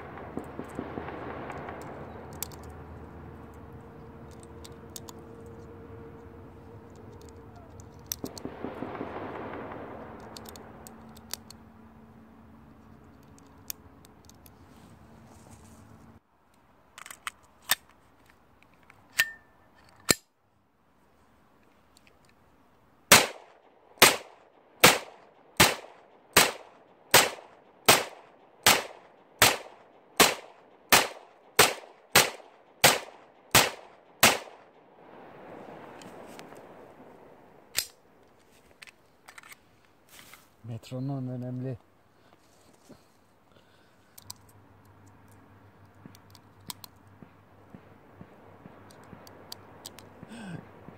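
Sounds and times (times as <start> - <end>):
faint scattered gunshots: 0.0 - 2.3, 8.3 - 11.0, 23.1 - 34.8
pistol shots with echo: 23.1 - 34.8.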